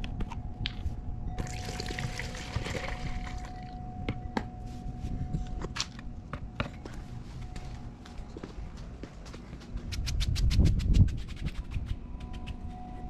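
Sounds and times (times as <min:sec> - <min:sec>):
liquid pouring into plastic container: 0:01.4 - 0:03.7.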